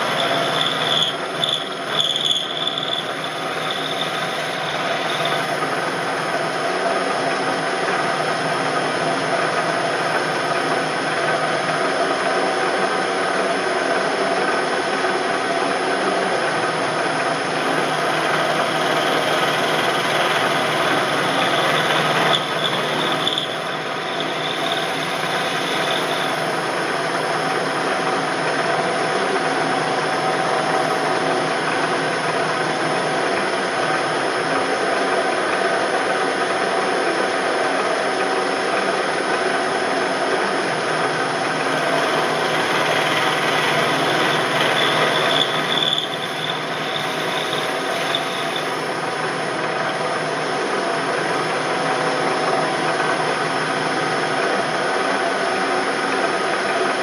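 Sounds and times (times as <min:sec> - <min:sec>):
high squeal from cutter: 0:00.0 - 0:05.8, 0:17.6 - 0:26.7, 0:41.6 - 0:49.0
milling machine spindle running: 0:00.0 - 0:57.0.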